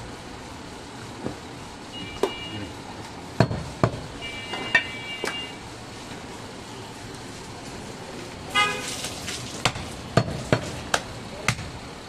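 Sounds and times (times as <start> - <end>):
cleaver chopping meat on wood: 9.6 - 11.8.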